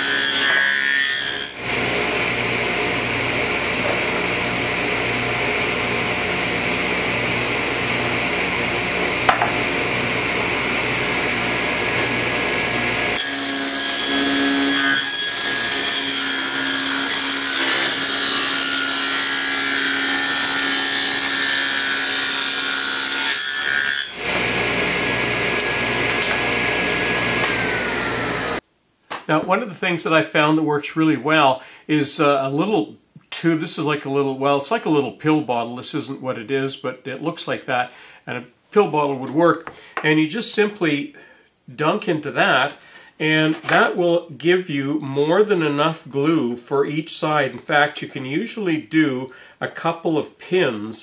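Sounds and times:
table saw cutting wood: 0.0s - 28.6s.

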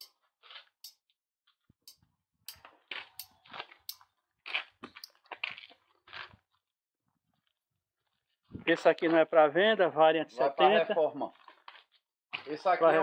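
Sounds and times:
footsteps on gritty floor: 2.5s - 6.6s, 11.4s - 12.6s.

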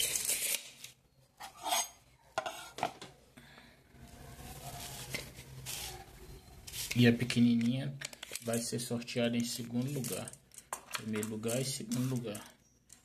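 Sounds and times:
metal objects scraping and clicking: 0.0s - 2.9s, 9.4s - 13.0s.

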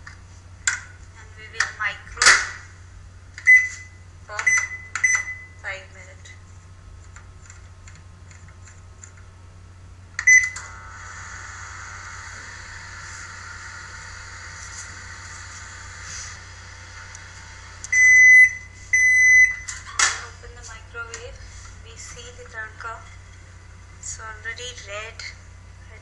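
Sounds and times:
microwave oven humming: 0.0s - 26.0s
microwave beeps: 3.4s - 5.6s, 10.2s - 10.8s, 17.9s - 19.8s.

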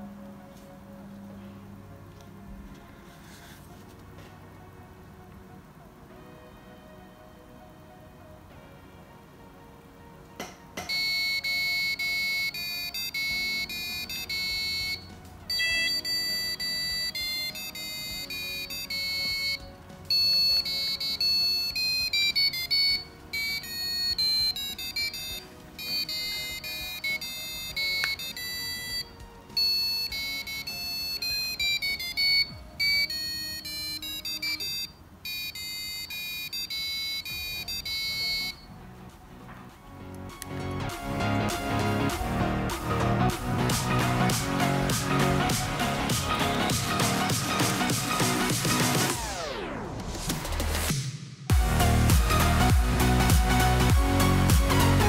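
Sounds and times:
piezo buzzer playing electronic tune: 10.8s - 38.8s.

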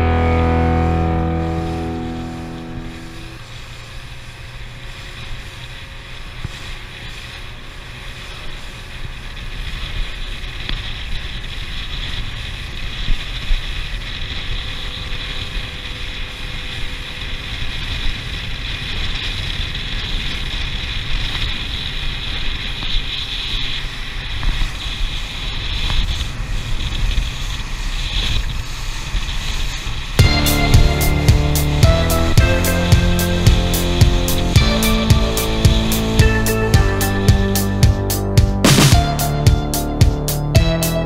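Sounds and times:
motorboat engine drone: 0.0s - 41.0s.

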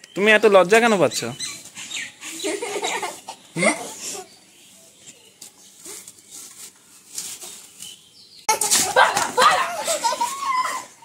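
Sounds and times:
girl laughing: 2.3s - 4.3s, 8.5s - 11.0s.

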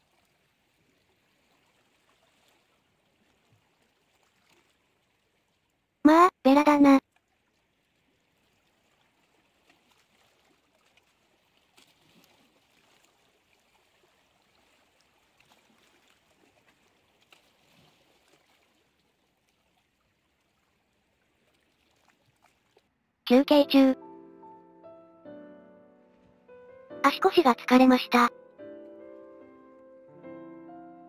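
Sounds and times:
water lapping against rocks: 0.0s - 5.8s, 7.0s - 22.9s.

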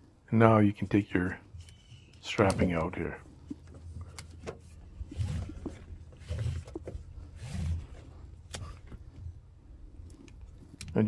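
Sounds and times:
soft handling noise: 1.2s - 11.0s
strap webbing being pulled: 4.1s - 9.0s.

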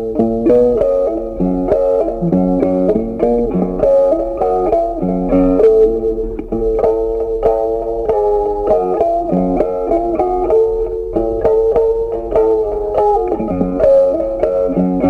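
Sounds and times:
plucked guitar tune: 0.0s - 15.0s
bass line: 2.0s - 3.2s.

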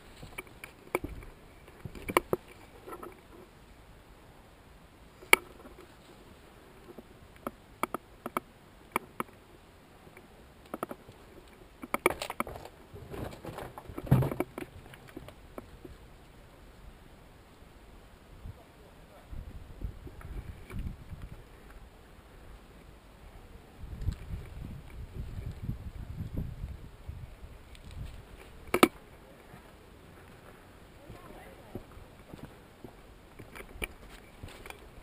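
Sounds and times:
footsteps on concrete rubble: 29.5s - 35.0s.

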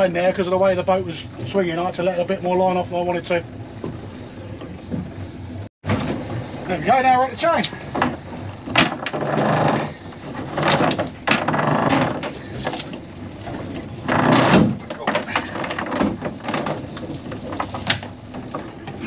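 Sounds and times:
anchor chain rattling: 7.6s - 19.0s
chain clanks: 8.1s - 18.5s.

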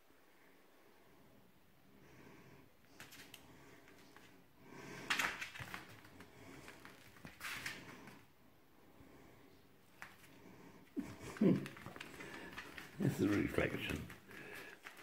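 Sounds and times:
puppy claws clicking on tiles: 11.0s - 15.0s.

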